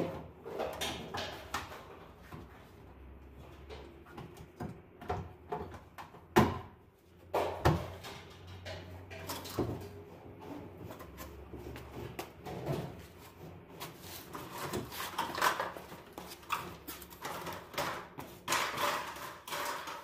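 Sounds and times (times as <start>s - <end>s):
tools clattering and knocking: 0.0s - 20.0s.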